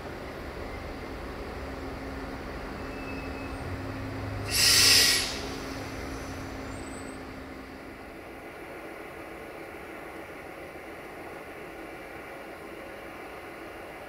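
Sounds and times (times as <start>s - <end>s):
diesel engine humming: 0.0s - 14.0s
compressed air hiss: 4.5s - 6.6s.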